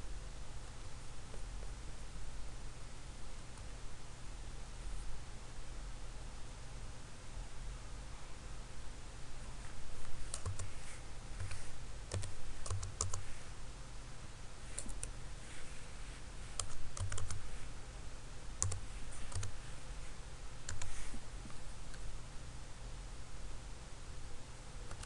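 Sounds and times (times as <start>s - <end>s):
steady low hum: 0.0s - 25.0s
keyboard keys clicking: 10.3s - 10.7s, 11.4s - 13.2s, 16.6s - 17.4s, 18.6s - 19.6s, 20.7s - 21.0s.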